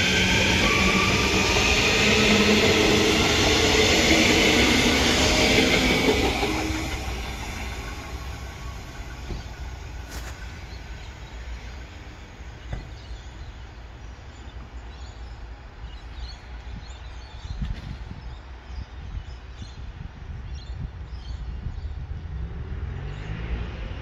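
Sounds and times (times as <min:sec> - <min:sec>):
electric train pulling away: 0:00.0 - 0:13.8.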